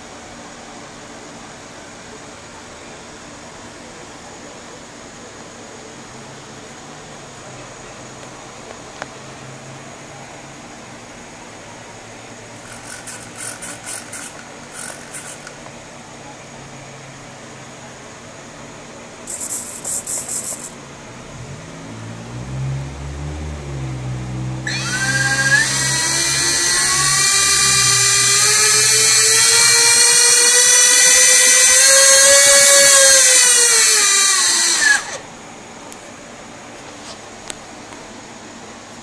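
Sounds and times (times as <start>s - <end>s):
electric ducted fans whining: 0.0s - 39.0s
short high buzzing burst: 12.6s - 15.6s, 19.3s - 20.8s.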